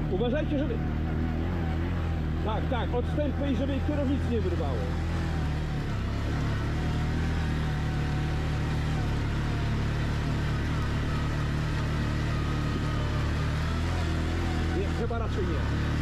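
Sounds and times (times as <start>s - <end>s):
quad engine running: 0.0s - 16.0s.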